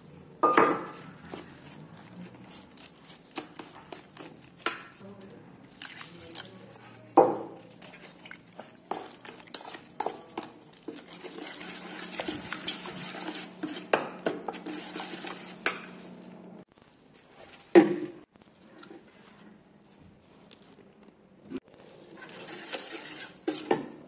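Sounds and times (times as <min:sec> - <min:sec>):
metal spoon stirring in steel bowl: 0:00.6 - 0:05.0, 0:07.6 - 0:16.3, 0:22.1 - 0:24.0.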